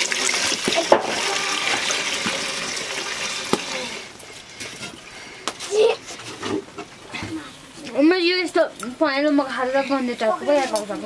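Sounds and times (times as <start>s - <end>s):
water pouring into metal pot: 0.0s - 4.2s.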